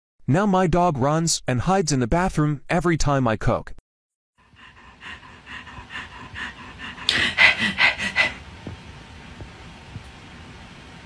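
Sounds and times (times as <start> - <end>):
dog panting quickly: 4.4 - 8.4.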